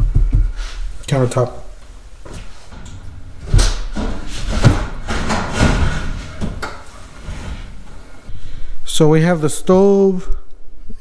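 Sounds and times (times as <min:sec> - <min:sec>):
metal range scraping and knocking: 0:01.7 - 0:08.3.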